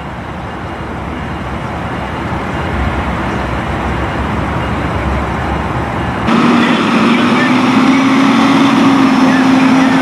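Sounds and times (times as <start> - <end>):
emergency vehicles idling: 0.0 - 10.0.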